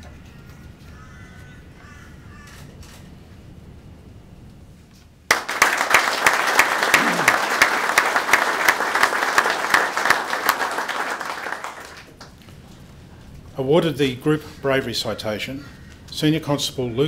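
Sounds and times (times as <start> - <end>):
audience applauding: 5.3 - 12.3.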